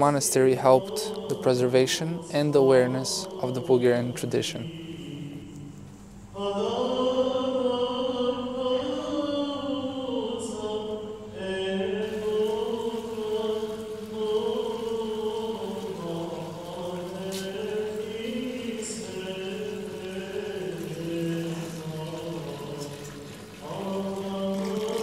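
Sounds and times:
voices chanting long notes: 0:12.0 - 0:25.0.

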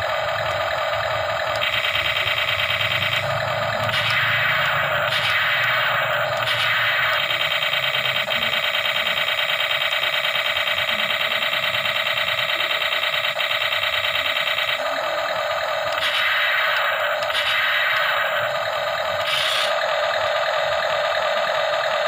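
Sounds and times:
rapid pulsing electronic buzz: 0:00.0 - 0:22.0
toy speaker hissing: 0:16.0 - 0:18.4, 0:19.2 - 0:19.7.

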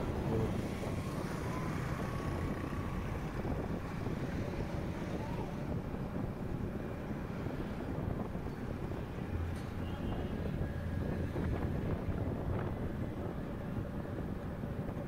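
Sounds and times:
highway traffic noise: 0:00.0 - 0:15.0
wind buffeting microphone: 0:00.0 - 0:15.0.

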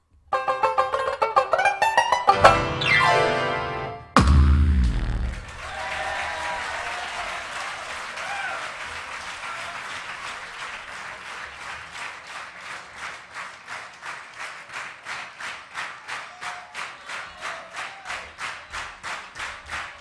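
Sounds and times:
audience applauding: 0:05.2 - 0:20.0.

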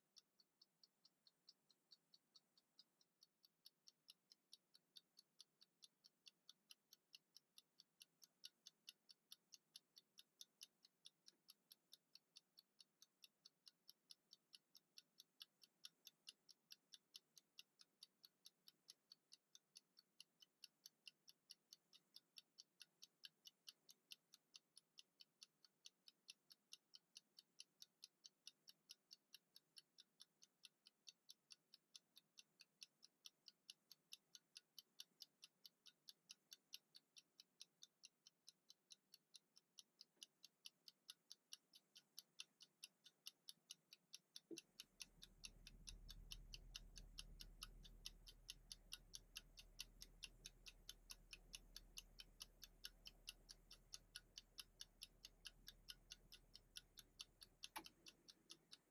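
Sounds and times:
kitchen timer ticking: 0:00.0 - 0:58.9.

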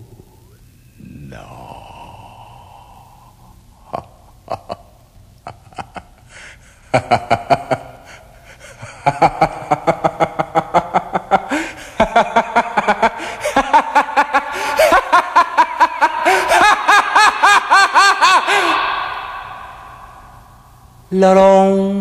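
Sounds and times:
person laughing in rapid pulses: 0:08.9 - 0:19.0.

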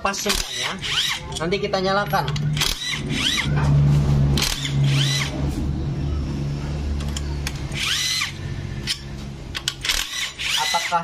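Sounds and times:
sharp metal clicks: 0:00.2 - 0:01.5, 0:02.2 - 0:03.4, 0:07.0 - 0:10.8
impact wrench motor whine: 0:02.4 - 0:03.7, 0:04.4 - 0:05.4, 0:07.7 - 0:09.0.

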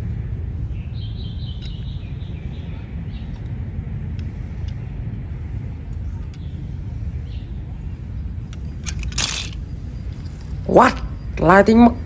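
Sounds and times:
bird chirping: 0:00.6 - 0:03.6, 0:06.0 - 0:08.8.

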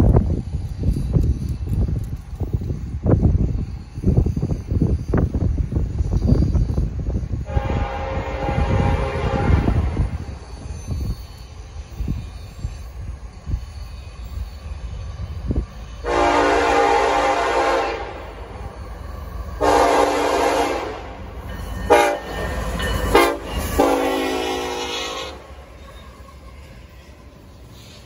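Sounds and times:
locomotive air horn blasts: 0:07.5 - 0:10.1, 0:16.0 - 0:18.4, 0:19.6 - 0:21.2, 0:21.9 - 0:22.4, 0:23.1 - 0:25.6.

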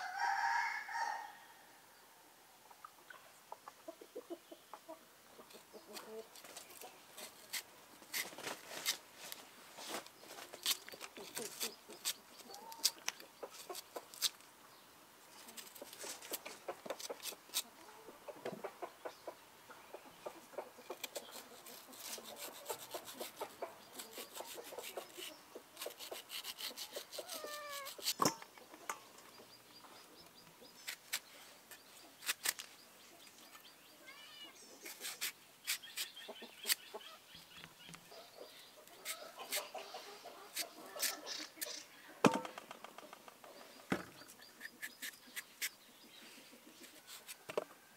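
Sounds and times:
chickens clucking: 0:02.6 - 0:07.4, 0:15.4 - 0:32.2, 0:35.9 - 0:47.8.

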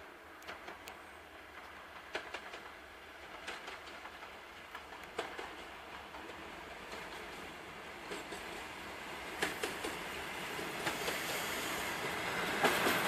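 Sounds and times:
sharp clicks and clacks: 0:00.4 - 0:01.0, 0:01.6 - 0:07.4, 0:09.4 - 0:10.0.

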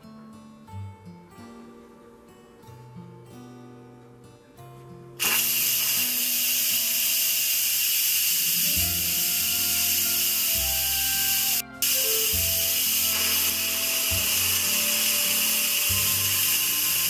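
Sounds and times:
steam valve hissing: 0:05.2 - 0:17.0.

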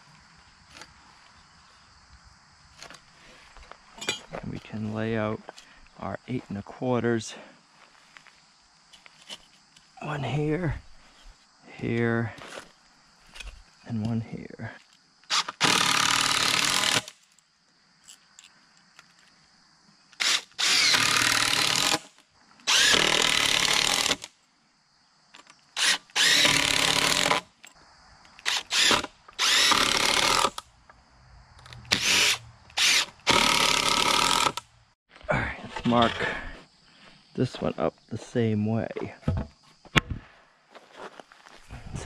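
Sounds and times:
cordless drill driving screws: 0:15.3 - 0:17.1, 0:20.2 - 0:22.1, 0:22.7 - 0:24.3, 0:25.8 - 0:27.4, 0:28.4 - 0:30.6, 0:31.9 - 0:34.6.

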